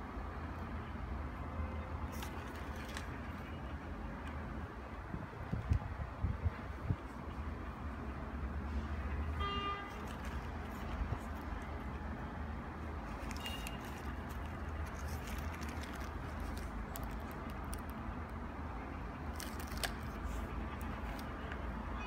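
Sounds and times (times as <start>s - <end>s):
sneaker and plastic bag rustling: 13.0s - 17.4s.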